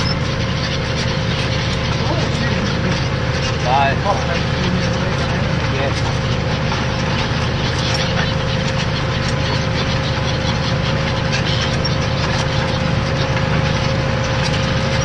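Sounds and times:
high whine: 0.0 - 15.0
tractor engine running under load: 0.0 - 15.0.

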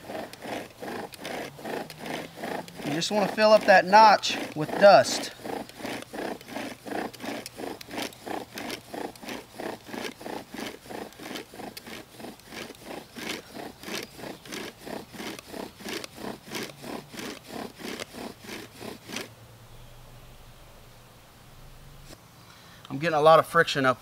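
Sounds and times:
bow drill spindle grinding: 0.0 - 19.3.

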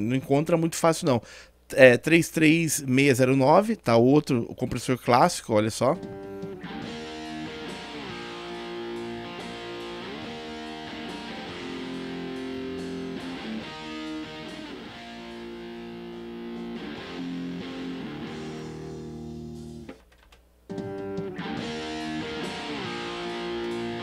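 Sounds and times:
electric guitar strummed chords: 6.0 - 19.9, 20.7 - 24.0.

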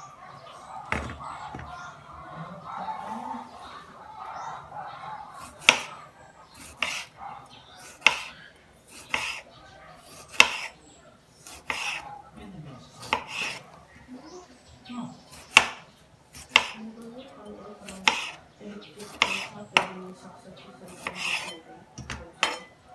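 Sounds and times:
knife knocking on cutting board: 0.9 - 1.7, 22.0 - 22.6.

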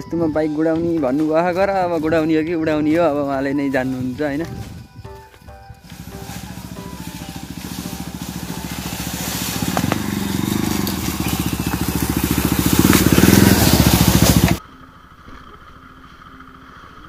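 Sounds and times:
knocks and crunches from ground: 4.4 - 14.6
motorcycle engine working hard: 5.7 - 17.0.

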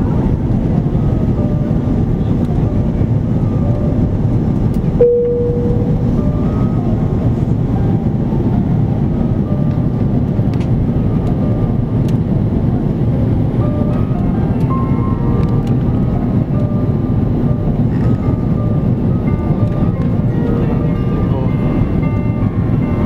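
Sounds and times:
airliner cabin engine roar: 0.0 - 23.0
short single tone: 5.0 - 6.8.

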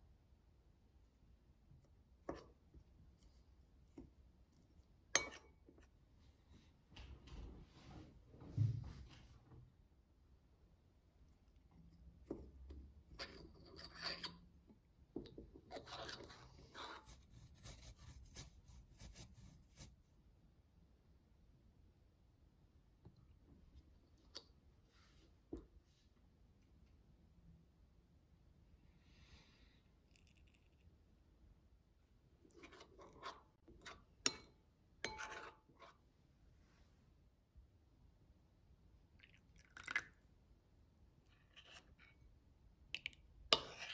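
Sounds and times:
spoon clinking on glass: 5.2 - 5.5
metal spoon stirring in glass bowl: 5.2 - 5.9, 12.3 - 14.5, 15.7 - 19.2, 32.5 - 36.0, 43.5 - 43.9.

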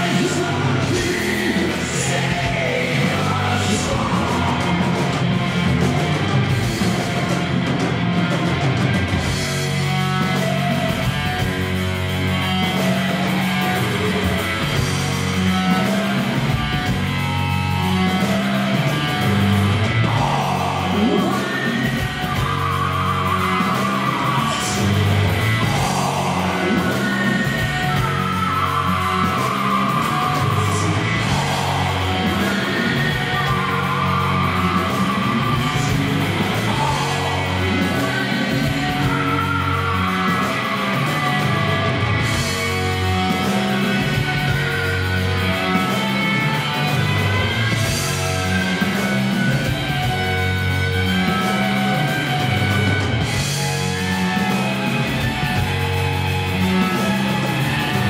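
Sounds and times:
man singing long held notes: 0.0 - 5.6, 18.2 - 42.4
live rock band playing: 0.0 - 58.0.

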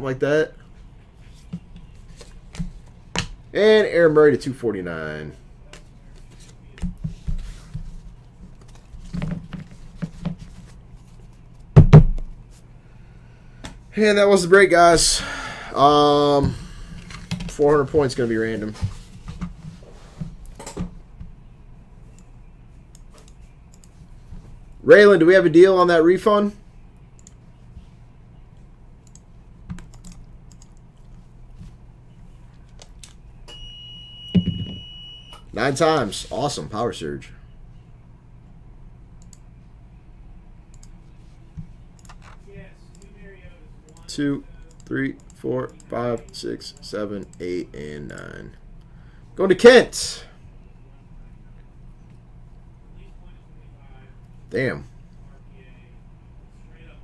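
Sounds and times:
low steady hum: 0.0 - 57.0
trading cards tapping and rustling: 5.7 - 12.2
computer keyboard typing: 29.0 - 30.8
high-pitched electronic beep: 33.5 - 35.4.

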